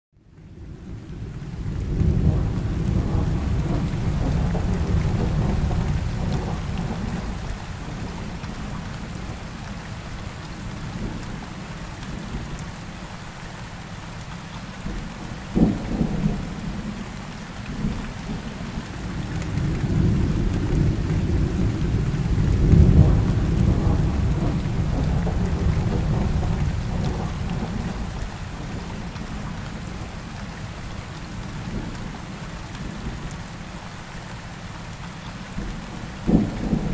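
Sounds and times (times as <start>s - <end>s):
steady rain: 0.2s - 36.9s
rolling thunder: 0.6s - 9.4s, 14.9s - 30.1s, 35.6s - 36.9s.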